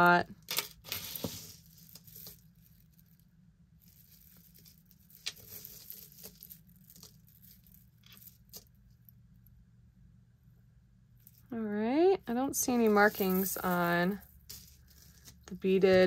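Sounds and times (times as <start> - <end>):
low steady hum: 0.0 - 16.0
beaded necklace clicking and rattling: 0.4 - 3.2, 3.8 - 9.1, 12.4 - 15.4.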